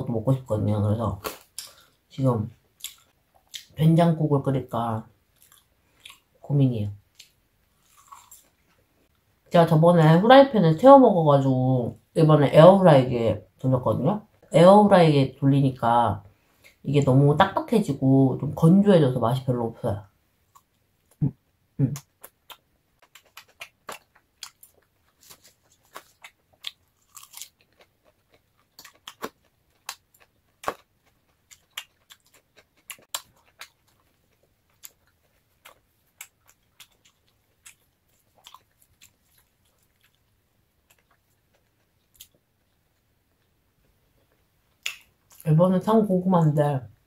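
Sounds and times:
person chewing food: 2.6s - 3.7s, 5.3s - 6.4s, 7.1s - 9.2s, 22.0s - 45.5s.

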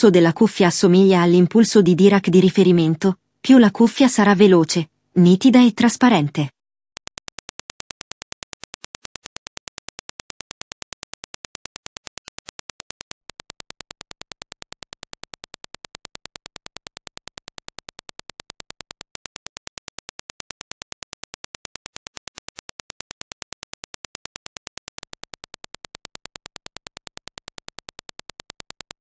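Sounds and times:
sharp test clicks: 7.0s - 29.0s.

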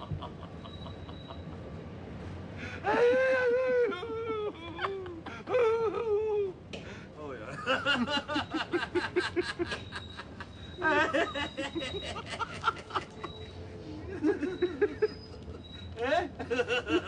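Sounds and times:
people laughing: 0.0s - 1.6s, 2.8s - 6.5s, 7.4s - 17.0s.

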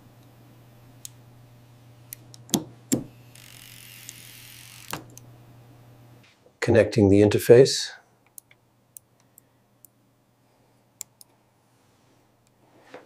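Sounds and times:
low steady hum: 0.0s - 13.0s
small mechanical clicks: 3.3s - 5.2s.

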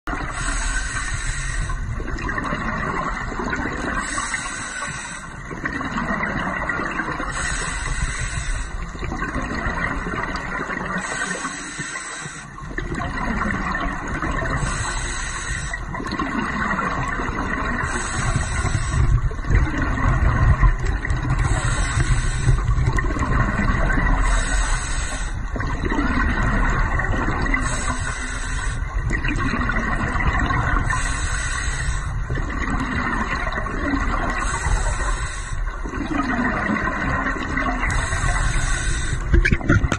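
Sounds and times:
steady low underwater rumble: 0.0s - 39.9s
gurgling exhaled bubbles: 0.1s - 11.7s, 12.5s - 39.9s
regulator breathing hiss: 0.3s - 1.8s, 4.0s - 5.4s, 7.3s - 8.8s, 11.0s - 12.6s, 14.6s - 15.8s, 17.8s - 19.2s, 21.4s - 22.7s, 24.2s - 25.4s, 27.6s - 28.9s, 30.9s - 32.2s, 34.4s - 35.7s, 37.9s - 39.3s.

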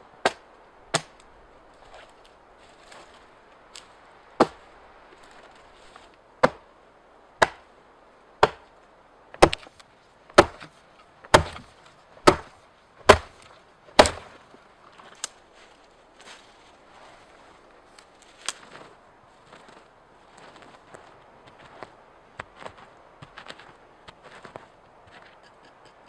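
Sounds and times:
axe chopping into log: 0.2s - 1.2s, 4.4s - 4.6s, 6.4s - 6.6s, 7.4s - 7.6s, 8.4s - 8.6s, 9.4s - 9.7s, 10.4s - 10.7s, 11.3s - 12.5s, 13.1s - 14.3s.

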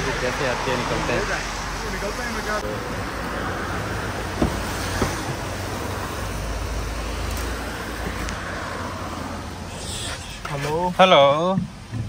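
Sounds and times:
rain hiss: 0.0s - 12.0s
wet road traffic: 0.0s - 12.0s
car door unlatching clicks: 4.3s - 5.5s.

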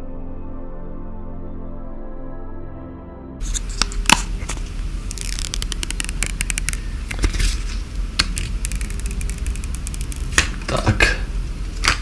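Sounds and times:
plastic film being peeled: 3.4s - 10.5s.

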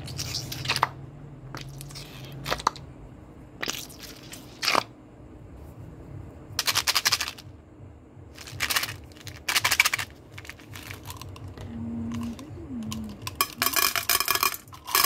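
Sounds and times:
candies rattling in plastic bottle: 6.6s - 7.5s, 8.3s - 15.0s.

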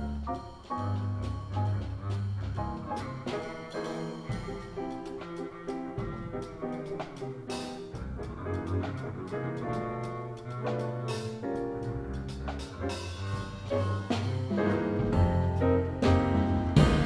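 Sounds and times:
bowed double bass: 0.0s - 17.0s
drums with cymbal strokes: 0.0s - 17.0s
piano: 0.0s - 17.0s.

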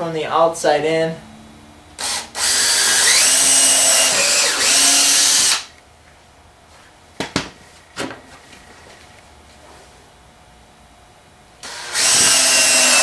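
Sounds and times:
power drill boring into wood: 2.0s - 5.7s, 11.6s - 13.0s.

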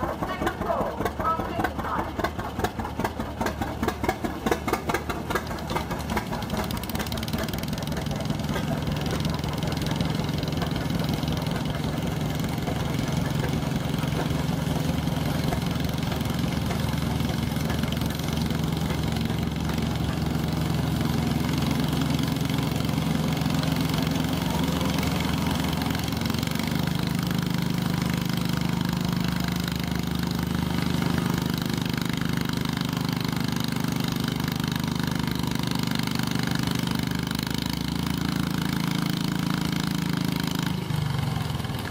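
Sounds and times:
tractor engine running hard: 0.0s - 41.9s.

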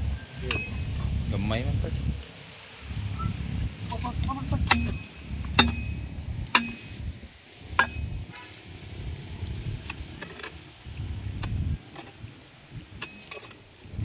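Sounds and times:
low rumble: 2.8s - 10.0s.

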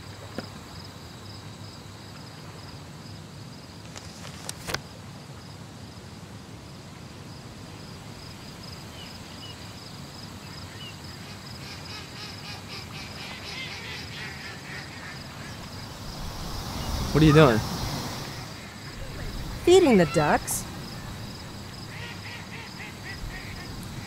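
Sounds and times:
high-pitched insect trill: 15.2s - 24.0s.

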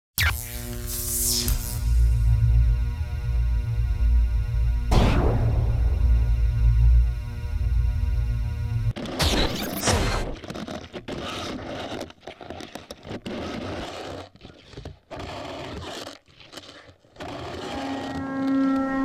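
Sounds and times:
ski scraping over crusty snow: 10.0s - 18.4s.

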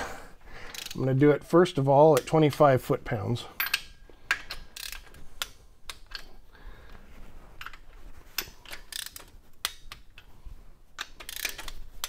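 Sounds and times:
torque wrench ratchet clicks: 0.7s - 1.0s, 3.6s - 5.1s, 8.7s - 9.9s, 11.0s - 11.8s.

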